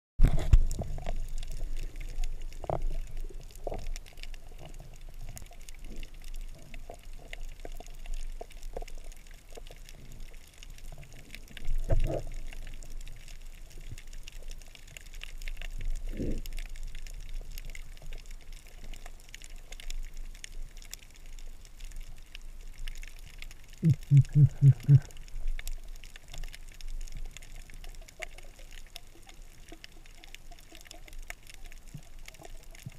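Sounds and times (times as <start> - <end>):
faint clicks and crackles: 0.2 - 32.9
muffled underwater movement: 0.2 - 32.9.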